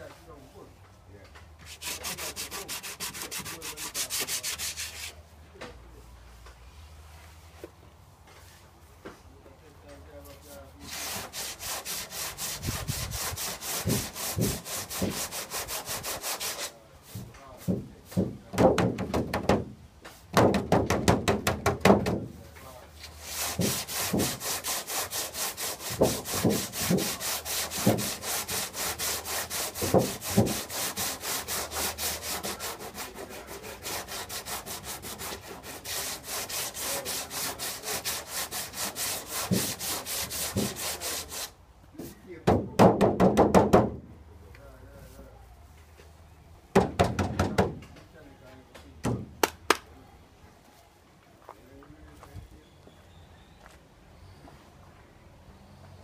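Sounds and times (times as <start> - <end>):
sandpaper scratching painted metal: 1.6 - 5.2, 10.4 - 17.7, 23.0 - 41.6.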